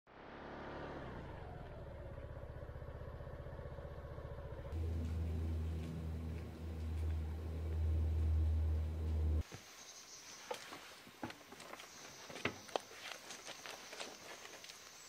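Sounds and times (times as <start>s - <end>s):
motor scooter engine running: 0.4s - 9.4s
steady low hum: 3.3s - 9.4s.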